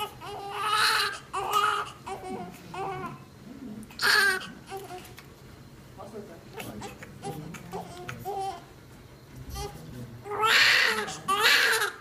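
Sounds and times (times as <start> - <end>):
newborn baby crying: 0.0 - 3.3, 4.0 - 5.1, 9.6 - 12.0.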